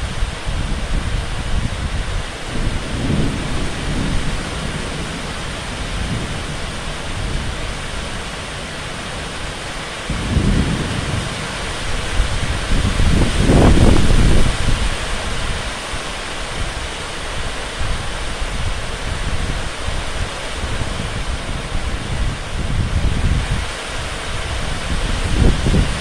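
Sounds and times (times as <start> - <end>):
low rumbles: 0.0 - 16.8
heavy rain falling: 0.0 - 26.0.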